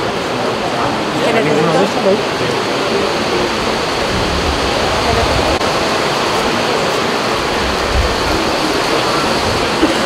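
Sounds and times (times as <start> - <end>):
heavy rain: 0.0 - 10.0
low rumble: 3.8 - 6.6.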